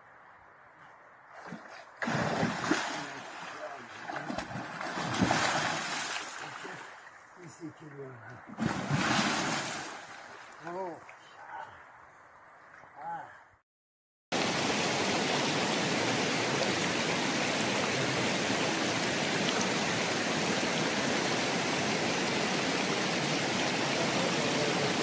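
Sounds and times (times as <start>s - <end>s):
river water rushing: 2.0s - 7.0s, 14.4s - 25.0s.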